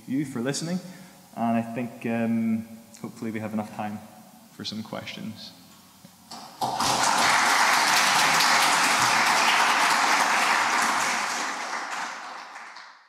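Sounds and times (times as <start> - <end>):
audience applauding: 6.3 - 13.0.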